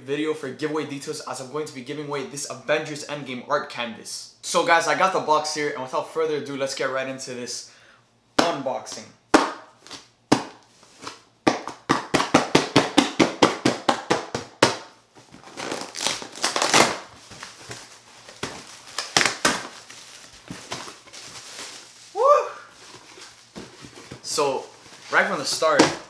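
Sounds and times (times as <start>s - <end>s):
cardboard tearing and rustling: 15.2s - 26.0s
plastic packing crinkling: 15.2s - 26.0s.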